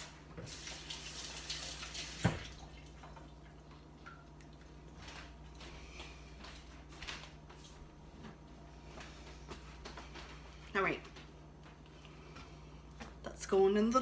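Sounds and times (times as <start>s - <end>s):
running kitchen tap: 0.0s - 3.5s
faint water drips: 1.5s - 5.7s.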